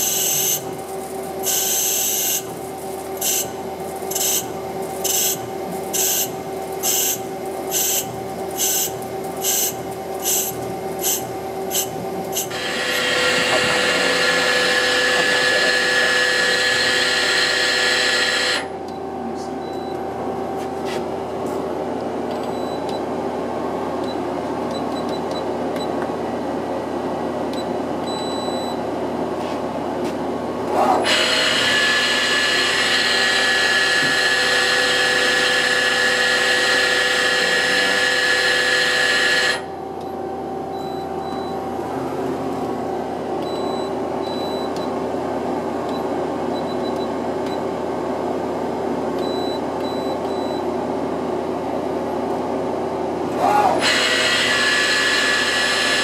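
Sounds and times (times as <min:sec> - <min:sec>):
high-pitched spindle whine: 0:00.0 - 0:00.8, 0:03.2 - 0:18.8, 0:31.0 - 0:39.8, 0:53.6 - 0:56.0
lathe humming: 0:02.1 - 0:18.8, 0:31.0 - 0:39.8, 0:53.2 - 0:56.0.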